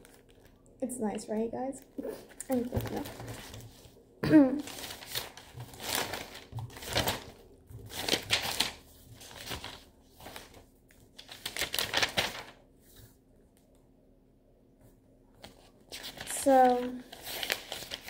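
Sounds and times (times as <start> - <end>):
paper sheets rustling: 2.1 - 13.2, 15.4 - 18.0.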